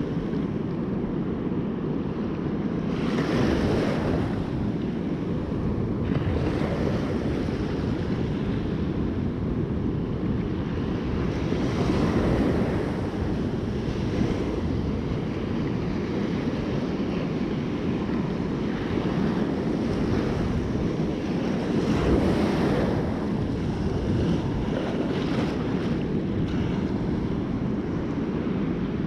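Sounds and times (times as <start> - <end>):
wind buffeting microphone: 0.0 - 29.0
sea surf breaking: 2.9 - 29.0.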